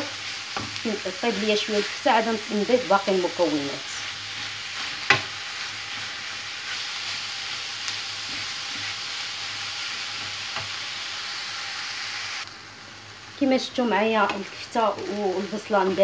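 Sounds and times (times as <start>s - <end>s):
meat sizzling in a frying pan: 0.0s - 16.0s
wooden spoon knocking on pan: 5.0s - 5.3s.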